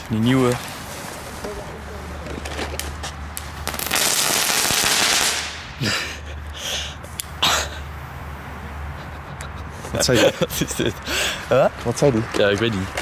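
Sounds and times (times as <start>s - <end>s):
fireworks crackling: 0.0s - 7.4s.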